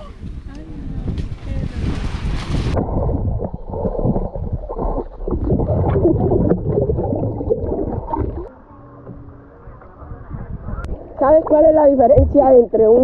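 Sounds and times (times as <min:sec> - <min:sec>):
underwater gurgling and bubbling: 0:02.7 - 0:08.5.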